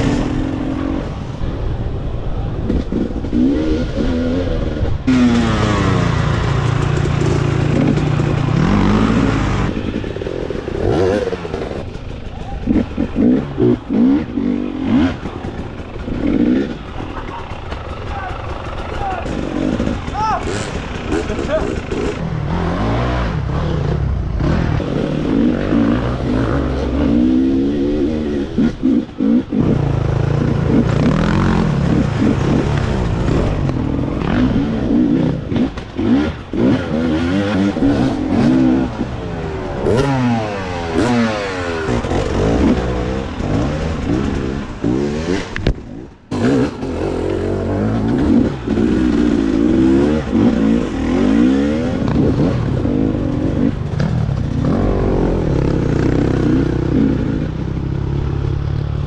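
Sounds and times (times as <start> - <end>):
dirt bike engines revving: 0.0 - 59.0.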